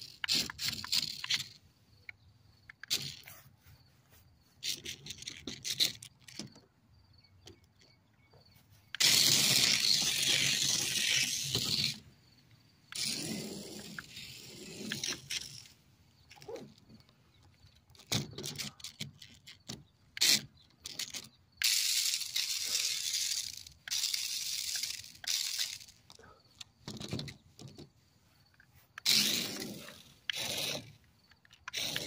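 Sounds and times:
toy rc car running: 0.0 - 1.6, 2.7 - 3.4, 4.6 - 6.5, 8.9 - 12.1, 12.9 - 16.9, 17.8 - 27.7, 29.0 - 32.0
plastic body rattling: 12.9 - 21.4, 22.1 - 28.0
handling clicks and knocks: 14.8 - 21.4, 24.7 - 32.0.

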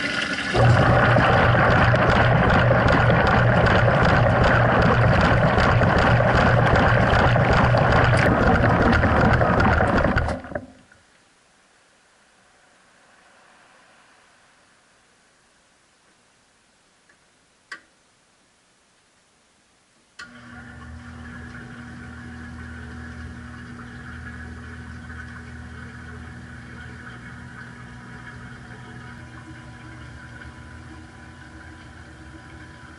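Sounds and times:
water churning in washing machine: 0.0 - 10.8, 20.3 - 32.9
steady low hum: 0.1 - 32.9.

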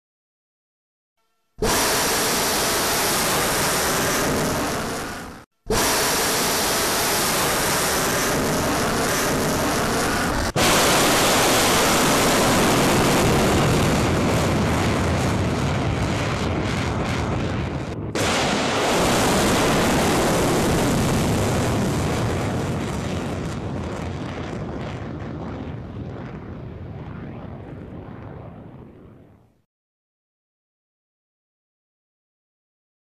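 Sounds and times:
rocket motor roaring: 1.6 - 29.2.

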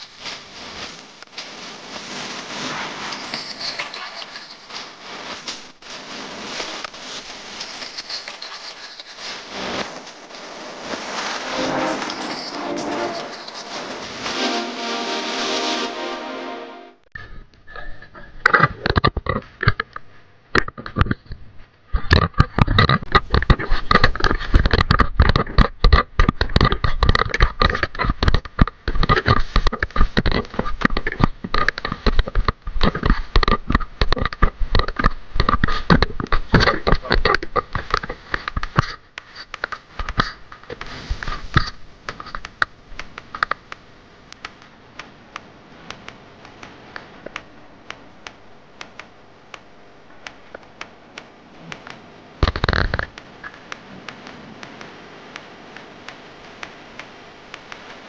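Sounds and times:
gloved hands rustling and scraping: 0.0 - 15.6.

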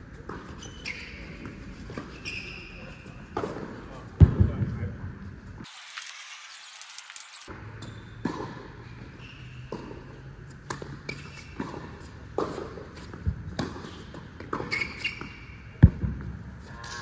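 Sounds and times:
shoe squeaks: 0.4 - 3.3, 8.8 - 9.8, 11.0 - 12.1, 14.6 - 15.7.

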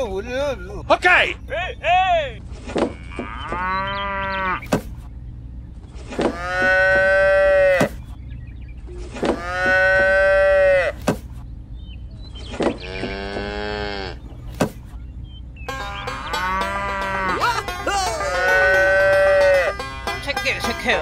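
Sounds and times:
cows mooing: 2.8 - 4.7, 6.2 - 8.0, 9.2 - 11.0, 12.8 - 14.3, 15.7 - 19.9.

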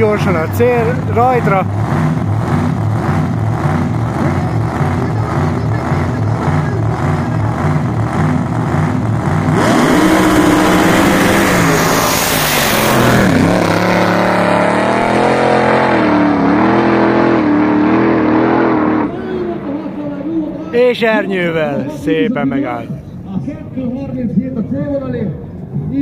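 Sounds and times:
drag car engine idling and accelerating: 0.0 - 26.0.

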